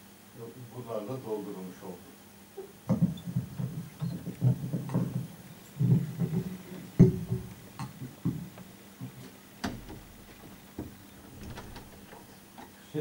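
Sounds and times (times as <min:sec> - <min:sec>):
knocks and clicks: 0:06.3 - 0:07.6, 0:11.3 - 0:12.2
sharp thump: 0:07.0 - 0:07.6.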